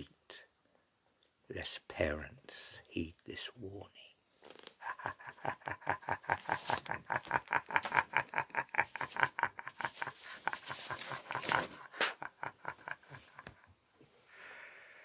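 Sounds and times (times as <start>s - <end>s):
man laughing theatrically: 4.8s - 13.8s.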